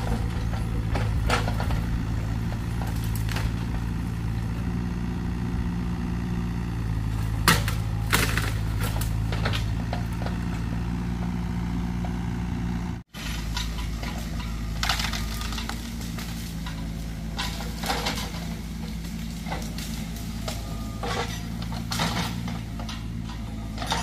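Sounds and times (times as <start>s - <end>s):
mini excavator engine running: 0.0s - 24.0s
branches snapping: 2.6s - 4.1s, 7.2s - 10.0s, 14.7s - 20.7s.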